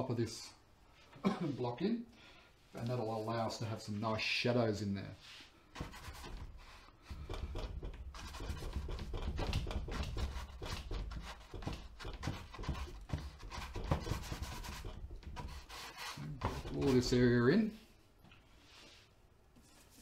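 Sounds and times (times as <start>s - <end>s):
brush scrubbing on canvas: 10.0s - 17.2s.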